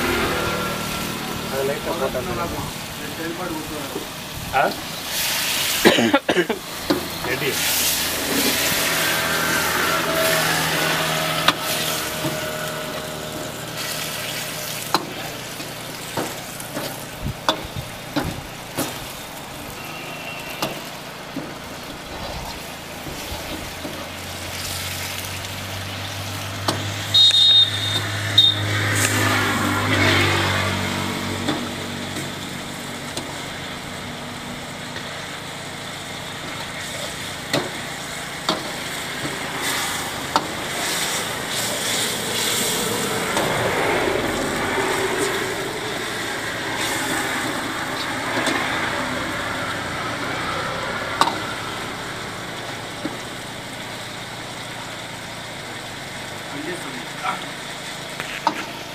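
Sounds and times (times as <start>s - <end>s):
food sizzling in wok: 0.0s - 58.9s
metal ladle scraping pan: 7.0s - 17.0s.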